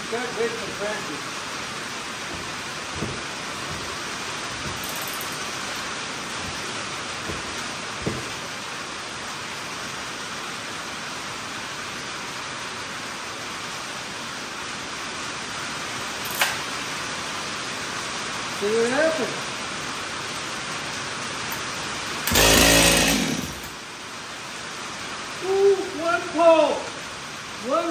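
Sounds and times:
rain on a tin roof: 0.0 - 27.9
soft knocks: 2.3 - 5.4, 6.4 - 8.5
chainsaw starter cord clack: 4.6 - 5.5, 22.3 - 23.8.

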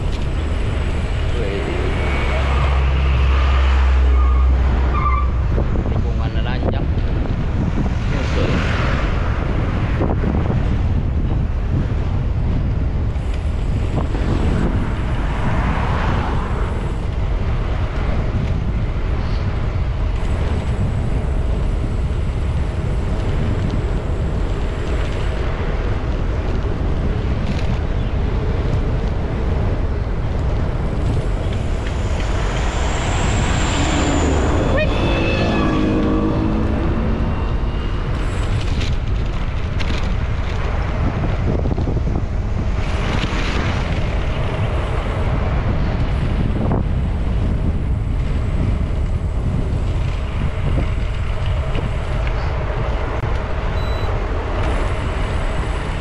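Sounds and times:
road traffic passing: 0.0 - 56.0
wind buffeting microphone: 0.0 - 56.0
vehicle engine passing by: 31.0 - 39.2.

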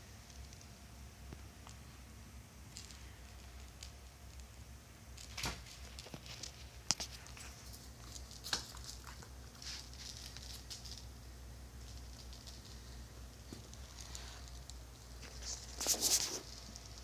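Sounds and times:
puppy claws clicking on tile floor: 5.2 - 11.1.

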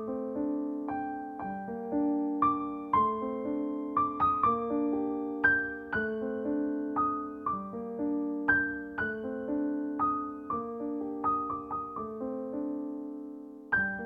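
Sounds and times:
gentle keyboard melody: 0.0 - 14.0.

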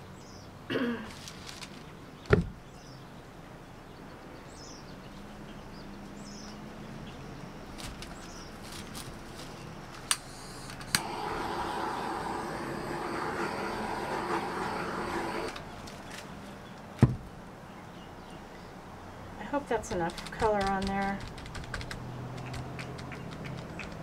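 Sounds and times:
air blower whirring: 10.1 - 15.7.

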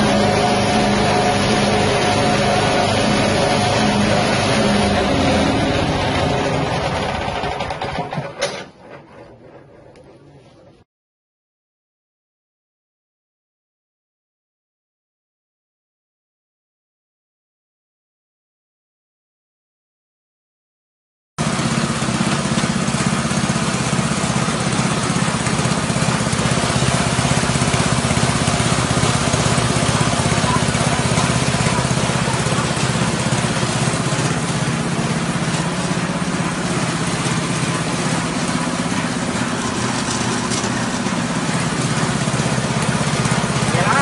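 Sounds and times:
petrol engine drone: 0.0 - 8.4, 21.6 - 44.0
husk milling rush: 22.6 - 44.0.

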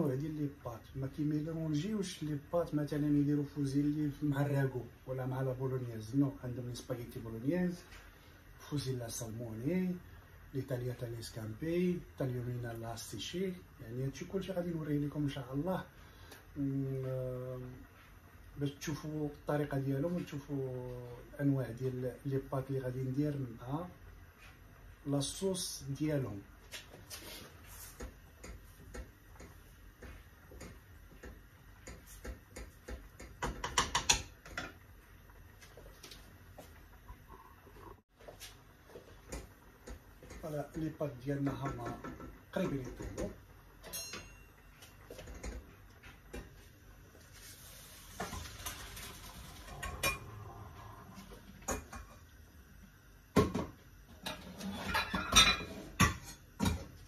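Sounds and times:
gas hob hissing: 46.2 - 52.7
pans and utensils clattering: 54.1 - 56.9.

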